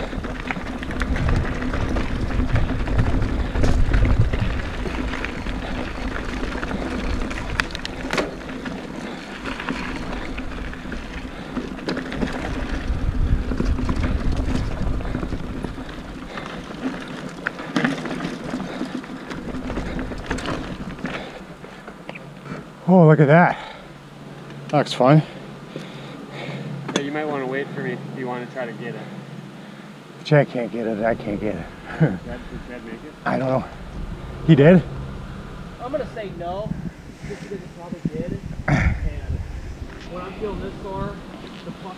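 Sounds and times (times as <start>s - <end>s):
wind rumbling on microphone: 0.0s - 17.2s, 31.2s - 41.7s
bike rattling over rocks: 0.0s - 22.4s.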